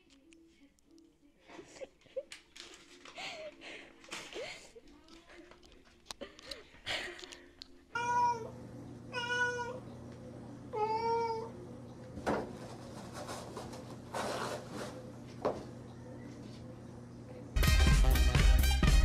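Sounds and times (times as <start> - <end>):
cat meowing: 7.9 - 8.5, 9.1 - 9.8, 10.8 - 11.5.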